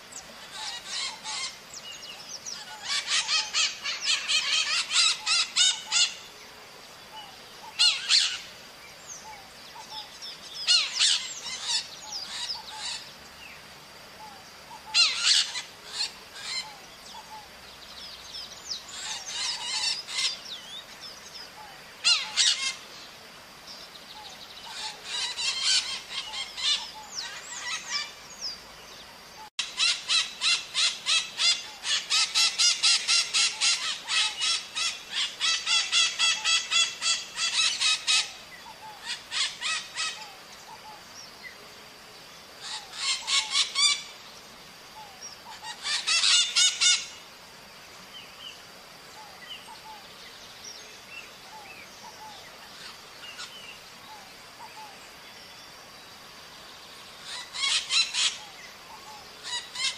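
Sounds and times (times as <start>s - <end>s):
parrots screeching: 0.4s - 1.6s, 2.6s - 6.2s, 7.8s - 8.4s, 10.7s - 13.0s, 14.9s - 16.6s, 22.0s - 22.8s, 24.7s - 28.0s, 29.6s - 38.3s, 39.0s - 40.2s, 42.6s - 44.0s, 45.5s - 47.1s, 57.2s - 58.5s, 59.4s - 59.9s.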